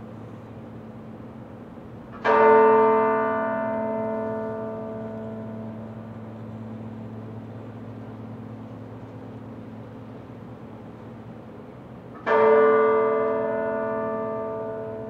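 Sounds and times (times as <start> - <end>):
lingering bell hum: 0.0 - 15.0
large tower bell tolling: 2.1 - 10.1, 12.2 - 15.0.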